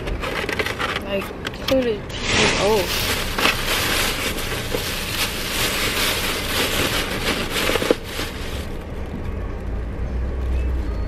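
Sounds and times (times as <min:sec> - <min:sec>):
plastic bag rustling: 0:02.0 - 0:08.9.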